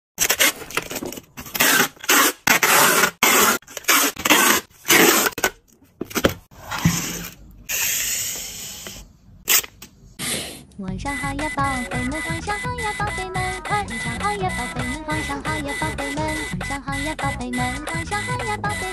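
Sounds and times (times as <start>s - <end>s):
packing tape ripping: 0.2s - 5.5s.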